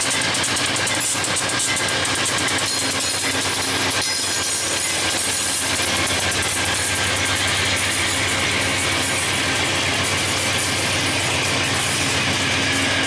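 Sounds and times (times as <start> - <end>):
diesel locomotive engine running: 0.0 - 13.0
freight cars rolling over rails: 0.0 - 13.0.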